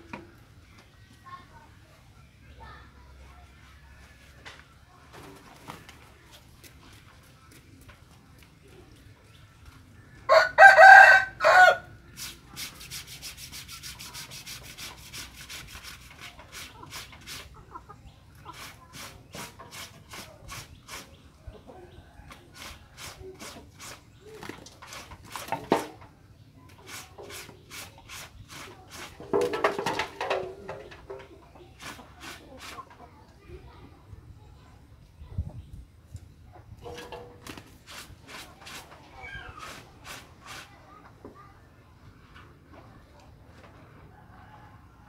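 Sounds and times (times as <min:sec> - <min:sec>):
chicken calls: 0:10.2 - 0:12.3, 0:16.2 - 0:25.4
rooster crowing: 0:10.3 - 0:11.9.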